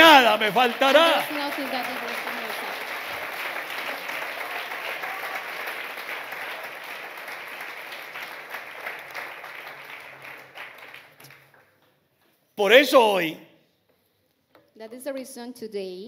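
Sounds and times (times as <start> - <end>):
congregation applauding: 0.0 - 11.8, 12.6 - 13.3.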